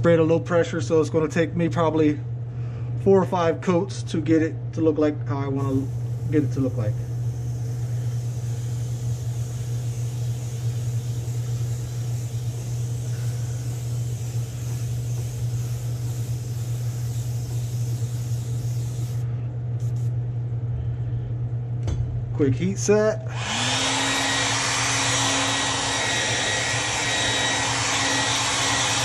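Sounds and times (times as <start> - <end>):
exhaust fan hum: 0.0 - 29.0
airbrush hissing: 5.6 - 20.2.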